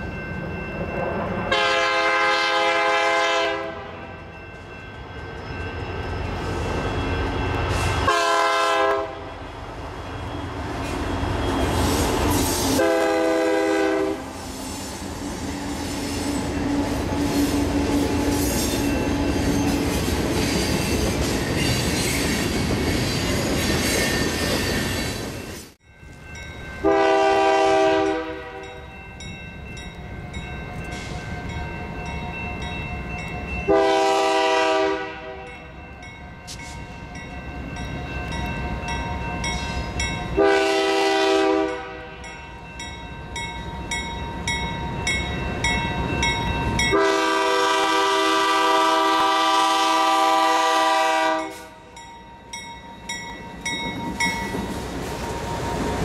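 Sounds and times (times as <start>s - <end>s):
crossing signal bell ringing: 0.0s - 2.2s, 3.7s - 14.0s, 15.4s - 21.8s, 25.3s - 47.5s, 50.9s - 56.0s
locomotive air horn blasts: 1.5s - 4.0s, 7.8s - 9.3s, 12.6s - 14.4s, 26.8s - 28.8s, 33.7s - 35.6s, 40.4s - 42.3s, 46.9s - 51.9s.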